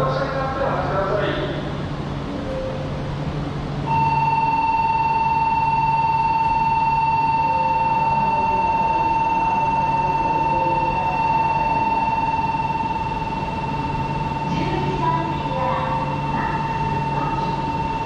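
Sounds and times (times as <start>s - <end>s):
train pulling in: 0.0s - 18.0s
platform warning buzzer: 3.9s - 18.0s.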